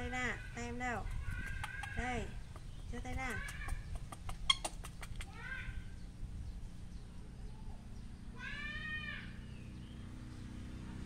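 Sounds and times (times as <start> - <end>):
baby monkey cooing: 0.0 - 5.9.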